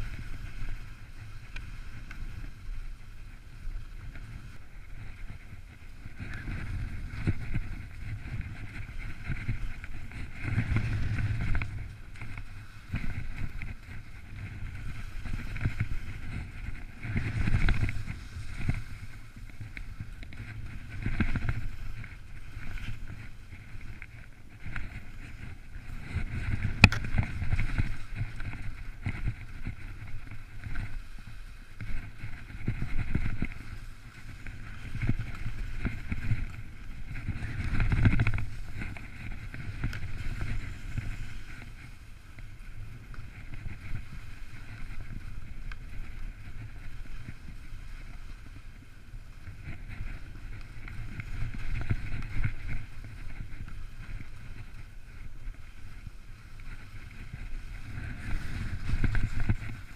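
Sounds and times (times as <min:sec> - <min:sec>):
skis hissing over snow: 0:00.0 - 0:59.9
wind buffeting microphone: 0:00.0 - 0:59.9.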